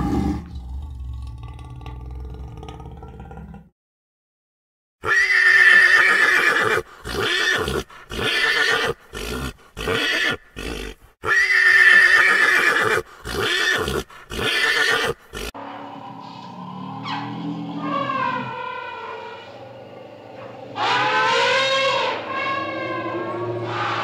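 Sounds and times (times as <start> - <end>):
horse whinnying: 5.0 - 15.5.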